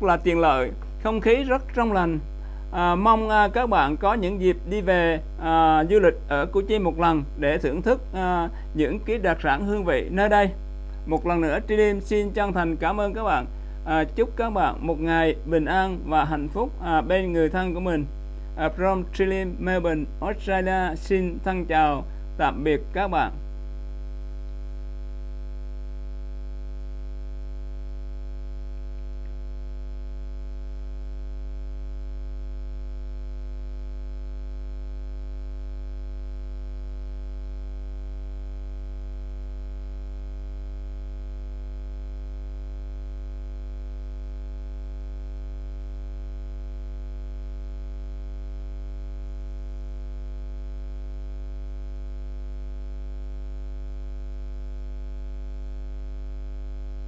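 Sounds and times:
electrical mains hum: 0.0 - 57.0.

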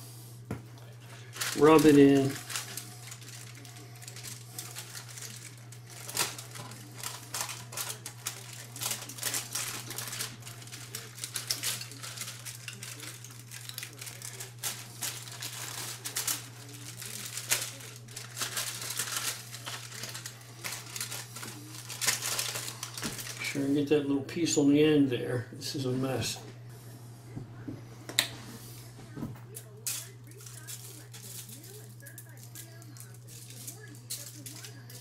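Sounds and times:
steady low hum: 0.0 - 35.0
aluminum foil crinkling: 0.8 - 23.8, 29.4 - 35.0.

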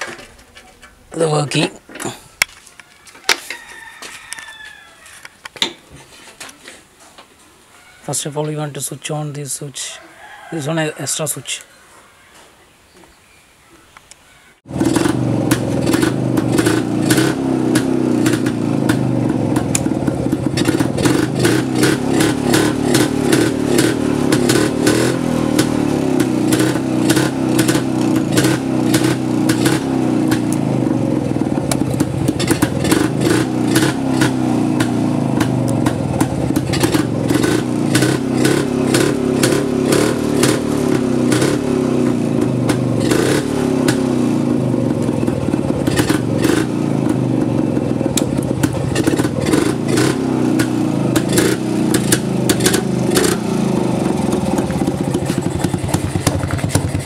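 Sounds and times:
two-stroke motorcycle engine running: 14.7 - 57.0.

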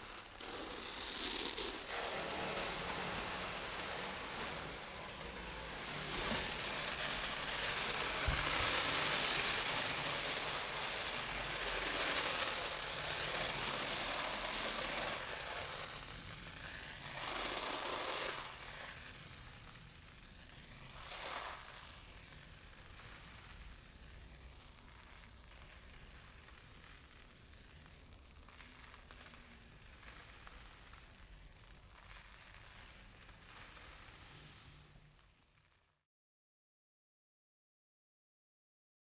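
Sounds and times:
rice grains pouring onto drum head: 0.0 - 19.1.

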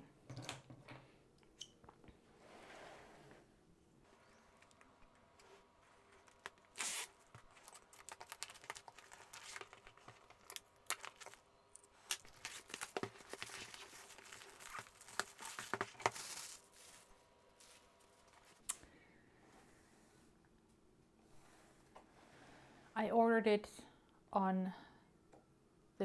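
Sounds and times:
plastic shrink-wrap crinkling: 6.2 - 17.8
plastic wrap ripping: 6.3 - 11.4, 12.0 - 16.8.

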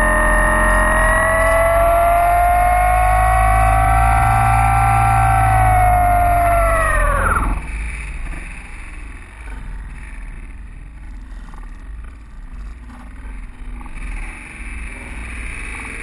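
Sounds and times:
rushing airflow and buffeting: 0.0 - 8.0.

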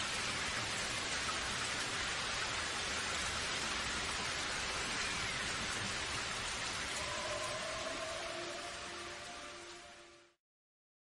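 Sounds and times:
waterfall pouring over rocks: 0.0 - 10.4.

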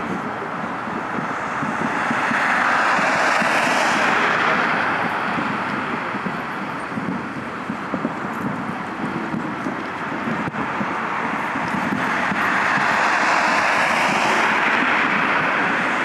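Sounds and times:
jet aircraft roar passing: 0.0 - 16.0.

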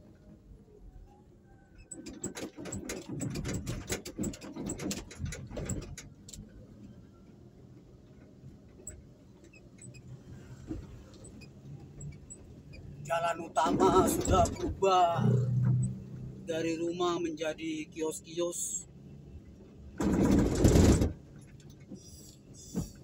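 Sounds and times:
vehicle hum: 0.0 - 23.0
rapid rattling and clicking: 1.9 - 6.5, 20.0 - 23.0.

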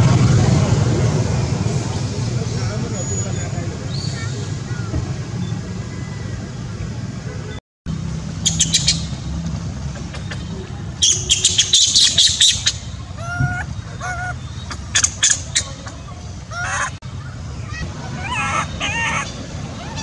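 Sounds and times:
harsh squawking animal calls: 10.0 - 20.0.

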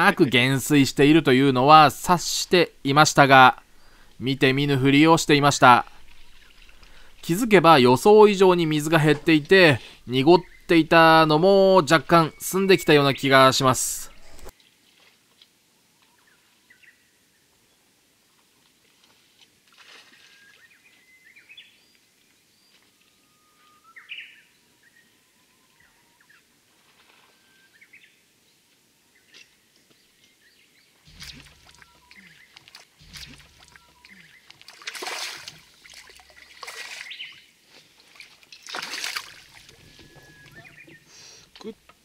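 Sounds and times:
small birds calling: 1.2 - 14.5, 29.2 - 37.6, 39.3 - 41.9
fish thrashing at water surface: 32.7 - 37.2, 38.2 - 39.9
loud water splashes: 34.7 - 37.2, 38.6 - 39.8.

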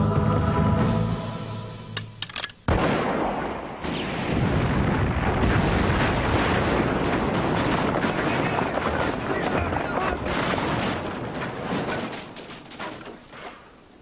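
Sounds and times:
long explosion rumble: 2.7 - 12.0
loud explosion blast: 2.7 - 12.0.

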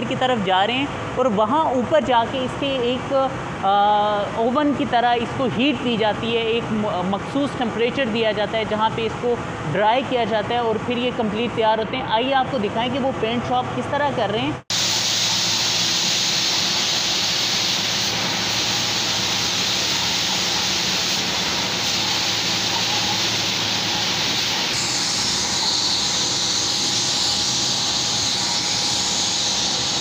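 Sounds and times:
spray gun hissing: 14.7 - 30.0.

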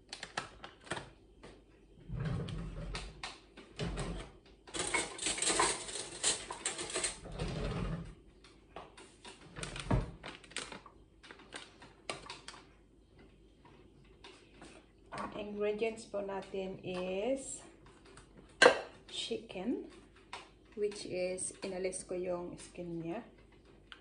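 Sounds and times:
utensils clattering in drawer: 4.1 - 8.0.

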